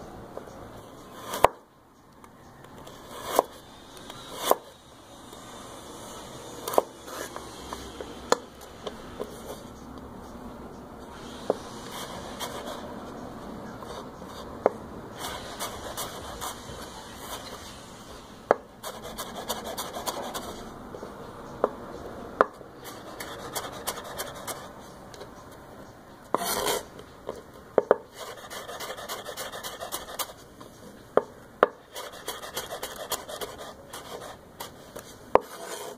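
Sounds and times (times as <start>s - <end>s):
knife scrape: 2.9s - 4.7s, 6.0s - 8.0s, 11.1s - 12.9s, 15.2s - 20.7s, 22.8s - 25.0s, 26.3s - 26.9s, 28.1s - 30.9s, 31.8s - 35.9s
knife slicing carrot: 4.1s - 4.7s.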